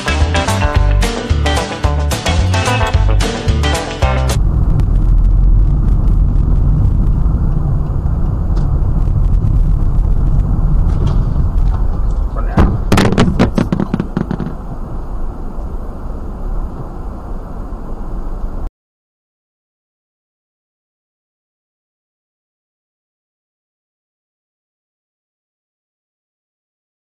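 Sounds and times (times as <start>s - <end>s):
car interior road rumble: 4.4s - 18.7s
car collision bangs: 10.8s - 14.8s.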